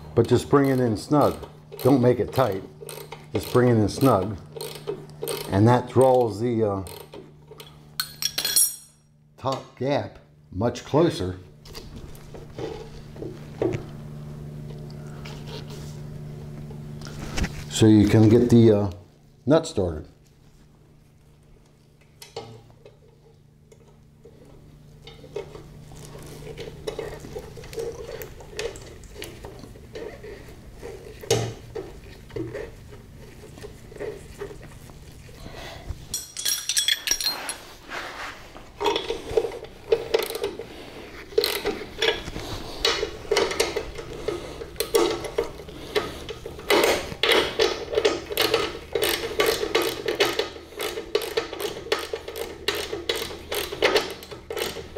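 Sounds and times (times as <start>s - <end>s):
ringing metal clink: 8.0s - 9.0s.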